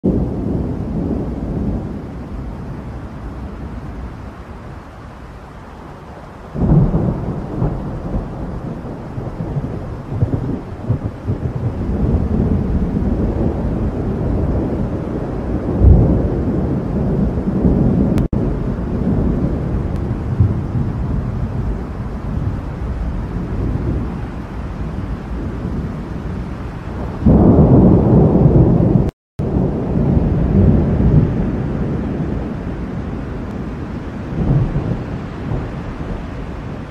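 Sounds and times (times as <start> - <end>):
thunder rumbling: 0.0 - 36.9
loud thunder clap: 26.8 - 36.9.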